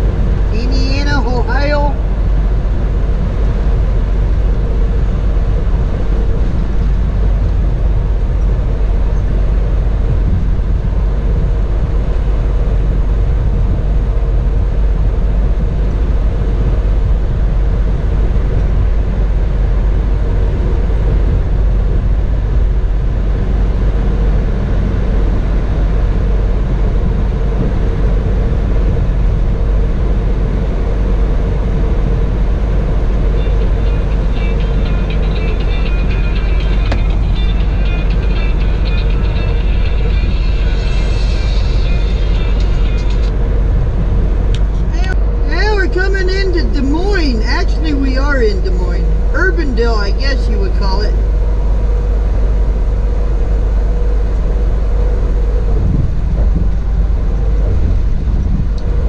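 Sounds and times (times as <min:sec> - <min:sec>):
faint steady hum: 0:00.0 - 0:59.0
truck engine and tyre rumble: 0:00.0 - 0:59.0.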